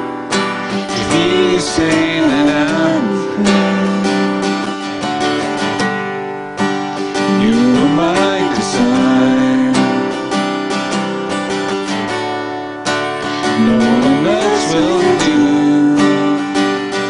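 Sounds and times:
strummed acoustic guitar: 0:00.0 - 0:17.0
man and woman singing: 0:00.8 - 0:04.6, 0:07.2 - 0:10.2, 0:13.3 - 0:17.0.

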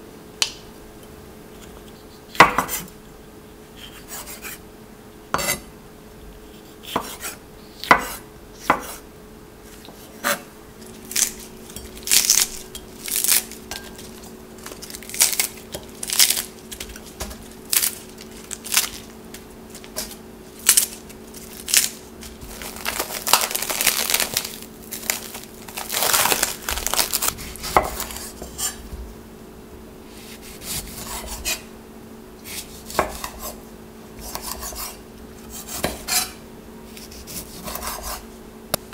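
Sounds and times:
knife chopping on wooden board: 0:02.3 - 0:02.9, 0:06.8 - 0:09.0, 0:27.2 - 0:28.8, 0:30.4 - 0:31.6, 0:32.9 - 0:33.5, 0:34.2 - 0:36.3
lettuce leaves rustling and tearing: 0:10.8 - 0:28.4.

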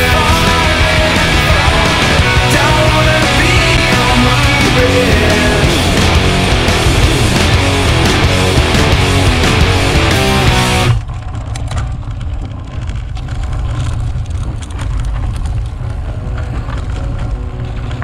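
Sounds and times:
rock music: 0:00.0 - 0:11.0
bicycle rattling and clicking: 0:10.9 - 0:18.0
wind buffeting microphone: 0:10.9 - 0:18.0.

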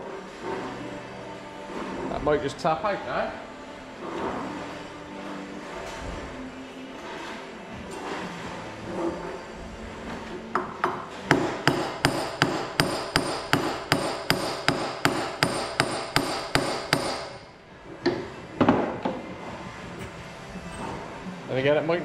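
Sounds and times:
hammer blows on metal: 0:11.3 - 0:17.5.

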